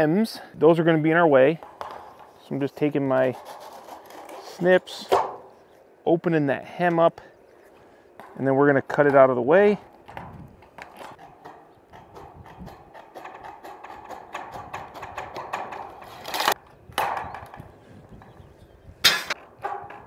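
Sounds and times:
snips clicking and crunching metal: 10.6 - 16.6.

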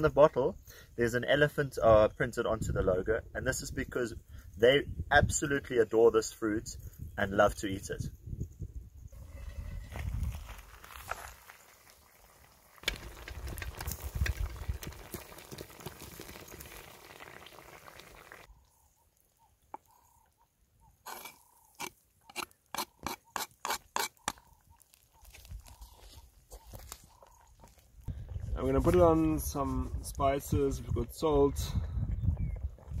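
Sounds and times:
stew bubbling and sizzling: 9.1 - 25.8.

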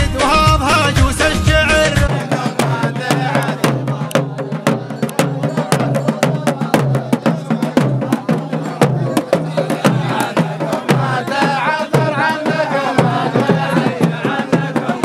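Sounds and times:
recorded music: 0.0 - 5.2
hand-beaten barrel drums: 0.0 - 15.0
men chanting low: 0.0 - 15.0.

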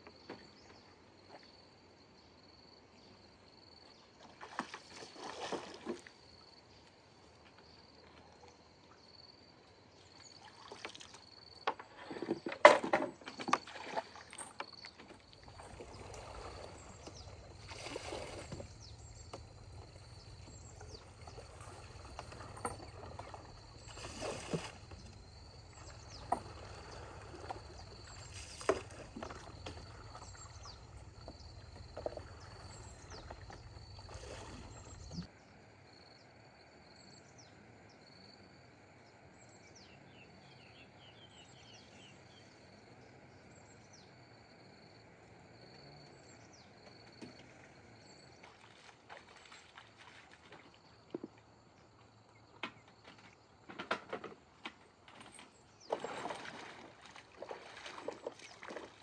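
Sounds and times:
bamboo pole splashing in water: 4.4 - 6.1, 55.9 - 59.0
insects buzzing and chirping: 13.6 - 38.3.

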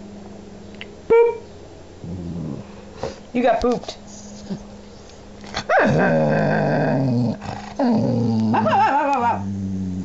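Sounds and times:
small dog growling: 2.0 - 2.9, 5.5 - 10.0.

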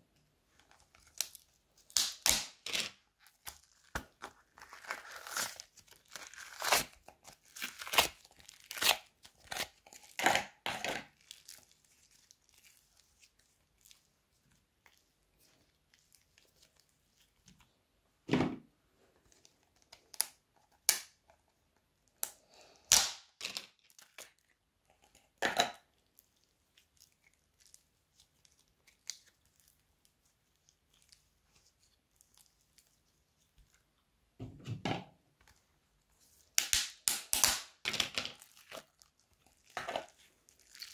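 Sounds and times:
plastic tubs crinkling: 37.8 - 40.9
slime squelching: 38.4 - 40.9.

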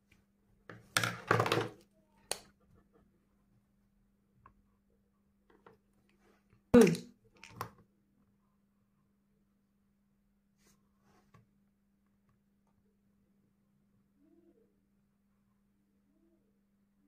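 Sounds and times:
marker pens knocking and rustling: 0.7 - 2.5.

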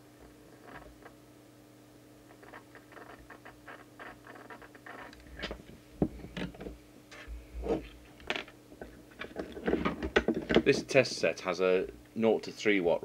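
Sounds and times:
small clicks and rustles: 2.3 - 10.7.

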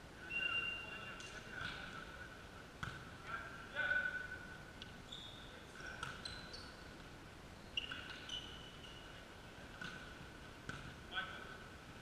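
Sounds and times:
shoes squeaking on hall floor: 5.0 - 7.0, 7.6 - 9.2.

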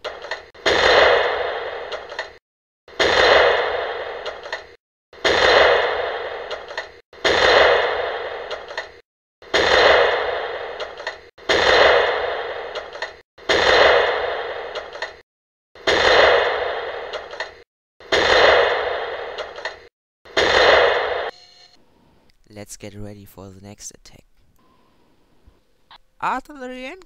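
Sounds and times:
artillery gun firing: 0.0 - 2.3, 2.9 - 8.8, 9.4 - 15.2, 15.8 - 21.3.

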